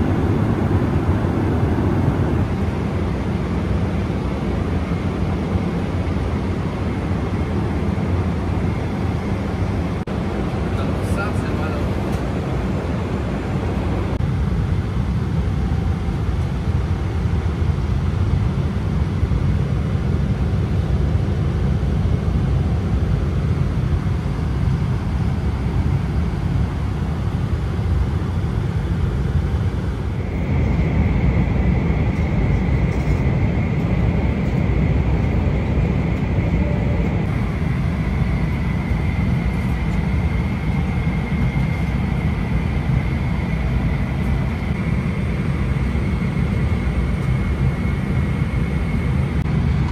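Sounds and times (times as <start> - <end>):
aircraft cabin engine rumble: 0.0 - 49.9
steady high whine: 0.0 - 49.9.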